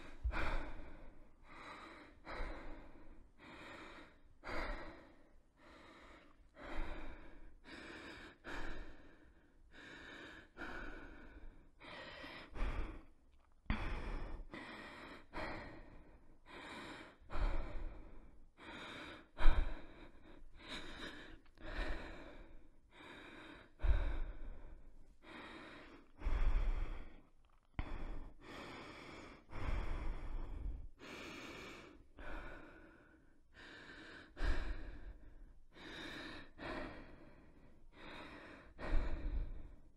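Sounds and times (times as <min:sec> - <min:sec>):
person breathing heavily: 0:00.0 - 0:39.9.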